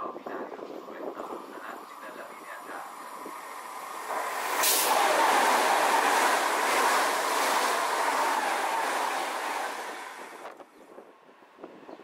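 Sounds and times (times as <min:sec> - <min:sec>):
train passing at speed: 0:01.3 - 0:10.6.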